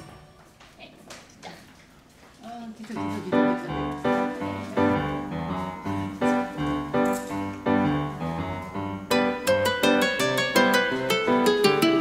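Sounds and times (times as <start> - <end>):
piano chords: 2.9 - 12.0
bright plucked notes: 9.1 - 12.0.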